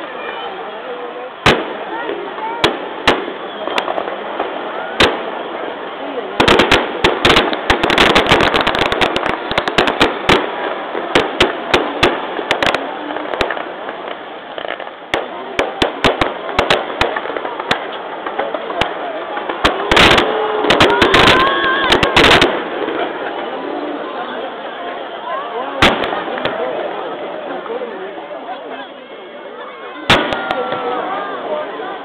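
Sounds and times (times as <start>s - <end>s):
fireworks cracking and banging: 0.0s - 32.0s.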